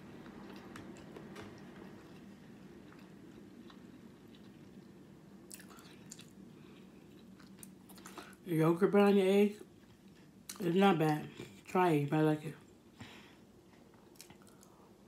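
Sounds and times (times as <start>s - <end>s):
person chewing food: 0.0s - 8.4s, 13.6s - 15.0s
low steady hum: 0.0s - 15.0s.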